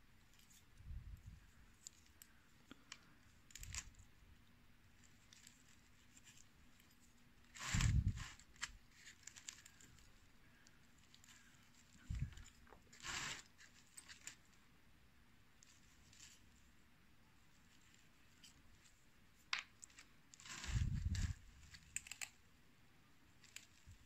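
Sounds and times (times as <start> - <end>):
knife cutting and scraping cactus: 7.5 - 9.8, 12.1 - 14.4, 20.3 - 22.4.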